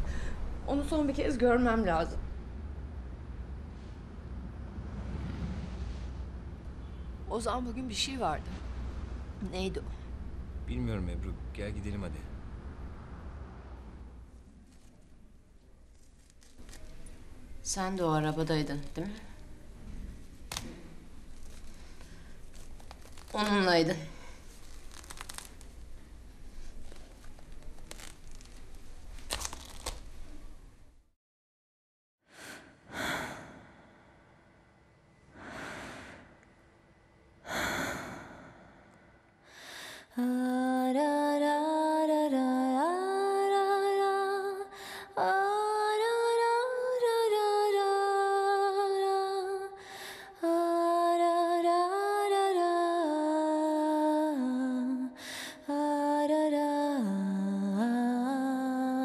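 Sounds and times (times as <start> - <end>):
breathy swells: 3.6 - 7.3, 32.4 - 40.1.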